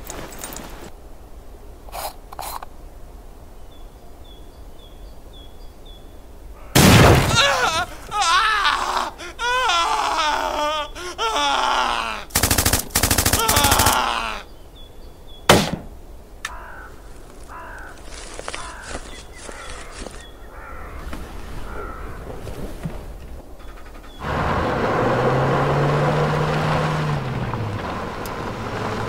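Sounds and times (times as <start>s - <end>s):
crows cawing: 6.5s - 14.6s, 16.4s - 22.4s
man crying out: 7.3s - 12.4s, 13.2s - 14.5s
machine-gun bursts: 12.3s - 14.0s
rifle shot: 15.5s - 16.0s.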